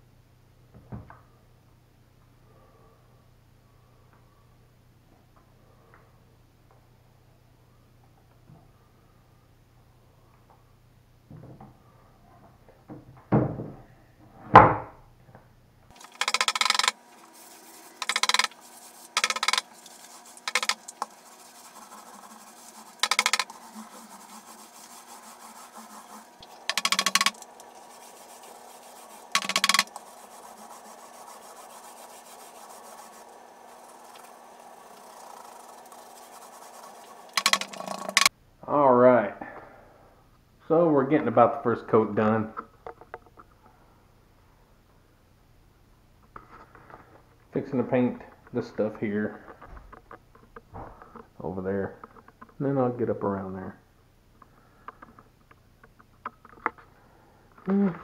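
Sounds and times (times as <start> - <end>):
paint roller swishing on wood: 15.9 - 38.3.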